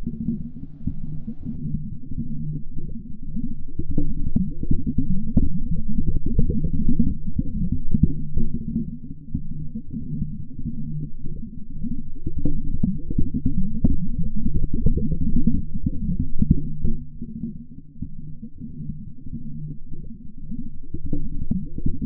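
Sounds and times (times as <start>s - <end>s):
deep muffled rumbling: 0.0s - 3.0s
low hum: 0.0s - 22.0s.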